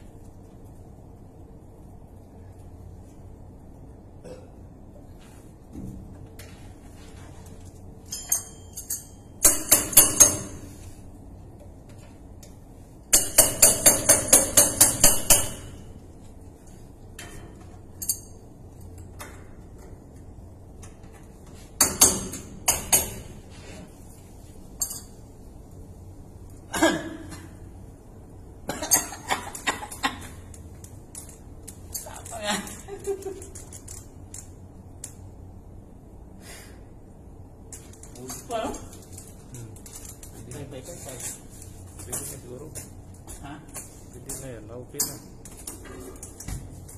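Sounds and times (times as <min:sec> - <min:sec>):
hand tool clinking on metal: 0:08.1 - 0:09.2.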